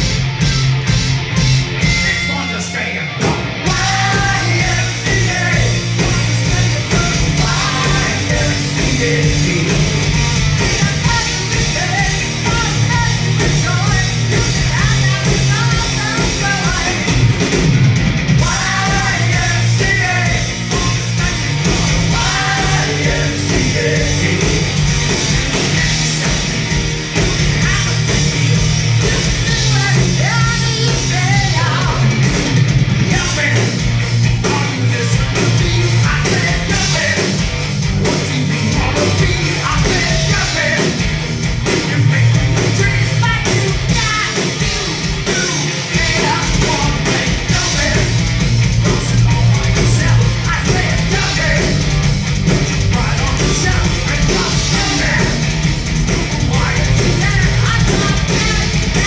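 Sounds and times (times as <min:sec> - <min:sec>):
bass guitar: 0:00.0 - 0:59.0
distorted electric guitars: 0:00.0 - 0:59.0
drum beat: 0:03.2 - 0:59.0
voices singing together: 0:03.5 - 0:17.0, 0:18.4 - 0:24.8.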